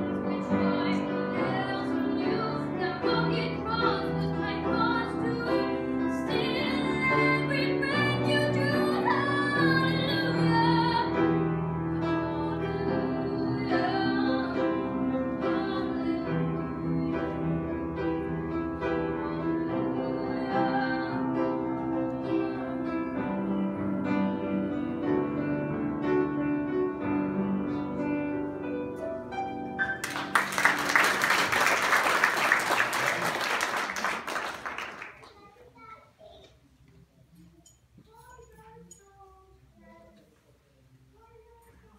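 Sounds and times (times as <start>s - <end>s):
woman singing a hymn: 0.0s - 17.8s, 18.8s - 23.3s
upright piano: 0.0s - 35.4s
applause: 29.9s - 35.4s.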